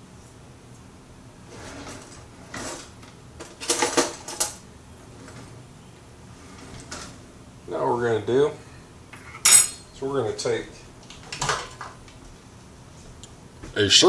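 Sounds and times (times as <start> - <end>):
cutlery and dishes clinking: 9.2 - 9.8.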